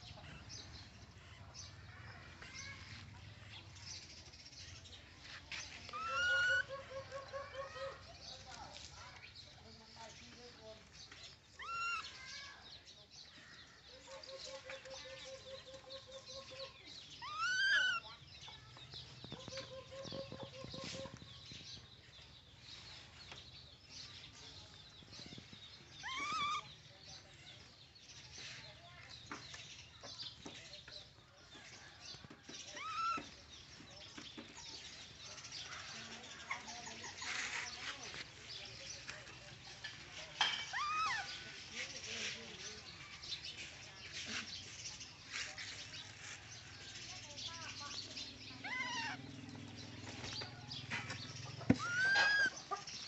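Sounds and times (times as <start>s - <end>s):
baby monkeys squealing: 5.9s - 8.0s, 11.5s - 12.2s, 16.2s - 18.2s, 26.0s - 26.7s, 32.7s - 33.3s, 40.6s - 41.4s, 48.6s - 49.2s, 51.6s - 52.8s.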